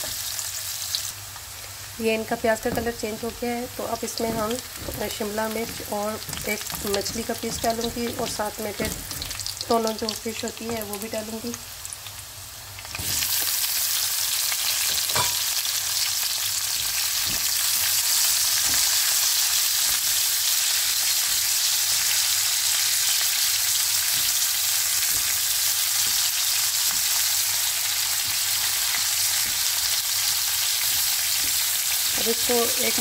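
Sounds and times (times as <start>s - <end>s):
oil sizzling in frying pan: 0.0s - 33.0s
spatula knocking against pan: 2.6s - 3.3s, 3.9s - 9.2s.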